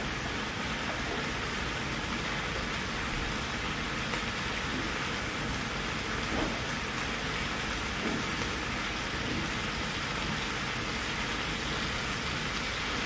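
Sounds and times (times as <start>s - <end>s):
food sizzling in a frying pan: 0.0s - 13.0s.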